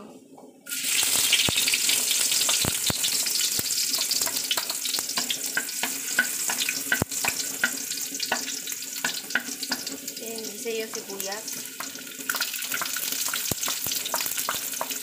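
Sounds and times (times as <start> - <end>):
garlic sizzling in oil: 0.7 - 15.0
spatula clicking against pan: 3.6 - 10.0, 11.8 - 15.0.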